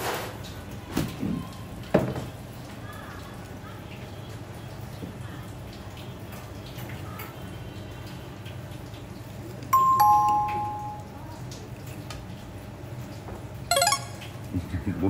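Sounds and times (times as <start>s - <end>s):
two-tone ding-dong chime: 9.8s - 11.2s, 13.7s - 14.3s.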